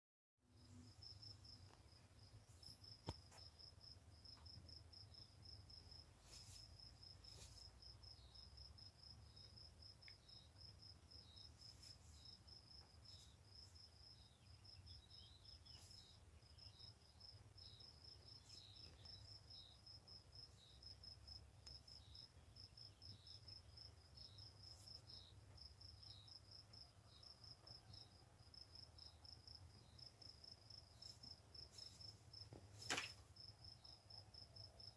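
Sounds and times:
cricket chirping: 0:00.6 - 0:34.9
rabbit scratching in hay: 0:06.2 - 0:07.7.

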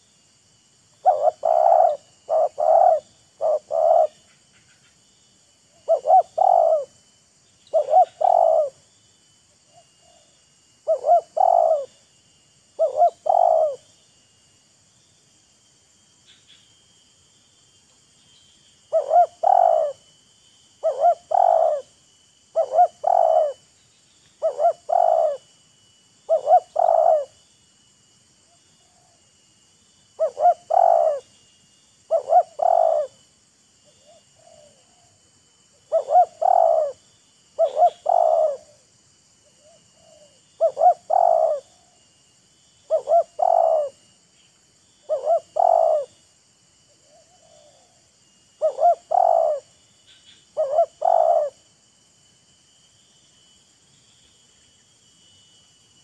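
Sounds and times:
high insect hum: 0:00.0 - 0:56.0
dove cooing: 0:01.0 - 0:04.3, 0:05.8 - 0:07.0, 0:07.7 - 0:08.8, 0:09.7 - 0:12.0, 0:12.8 - 0:13.9, 0:18.9 - 0:20.0, 0:20.8 - 0:21.9, 0:22.5 - 0:23.6, 0:24.4 - 0:25.5, 0:26.3 - 0:27.4, 0:30.2 - 0:31.3, 0:32.1 - 0:33.2, 0:34.0 - 0:35.2, 0:35.8 - 0:37.0, 0:37.6 - 0:38.8, 0:39.5 - 0:42.0, 0:42.9 - 0:44.1, 0:45.0 - 0:46.2, 0:47.0 - 0:49.7, 0:50.6 - 0:51.6.

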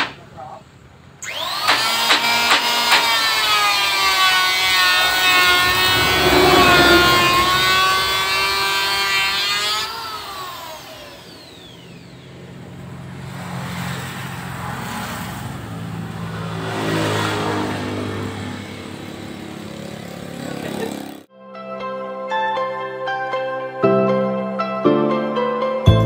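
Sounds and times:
electric planer whining: 0:01.2 - 0:12.8
wavering motor drone: 0:04.2 - 0:09.4.

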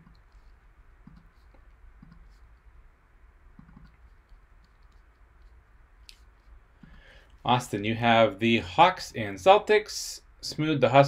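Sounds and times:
mouse and keyboard clicks: 0:00.0 - 0:02.4, 0:03.6 - 0:06.2
low steady hum: 0:00.0 - 0:11.0.

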